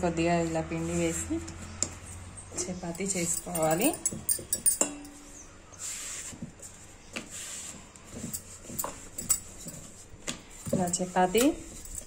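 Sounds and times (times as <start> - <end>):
rolling pin rolling dough: 5.8 - 12.0.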